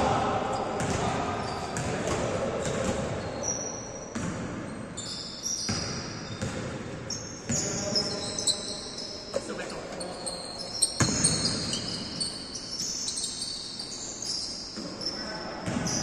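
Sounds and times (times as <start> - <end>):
sneakers squeaking on floor: 0.5 - 16.0
basketball bouncing on court: 0.7 - 3.5, 4.1 - 8.3, 10.8 - 12.3, 15.6 - 16.0.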